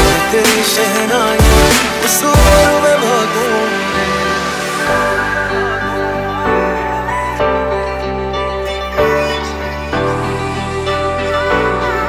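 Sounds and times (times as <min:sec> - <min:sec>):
soundtrack music with sustained chords: 0:00.0 - 0:12.0.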